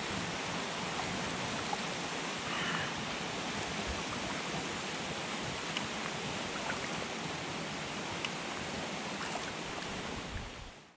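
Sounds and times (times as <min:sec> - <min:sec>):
water rushing around kayak: 0:00.0 - 0:10.9
paddle drips and splashes: 0:03.0 - 0:07.4, 0:08.0 - 0:10.5.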